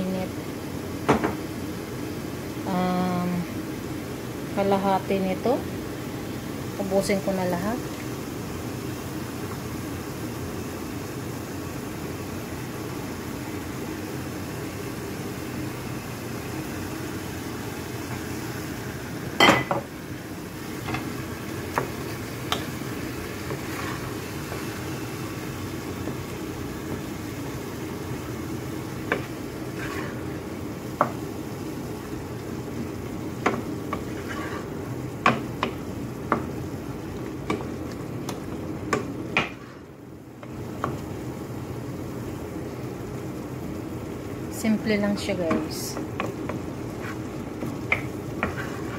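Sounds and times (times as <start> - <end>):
air conditioner humming: 0.0 - 48.9
wooden spoon stirring in a pan: 20.1 - 41.5, 44.6 - 48.9.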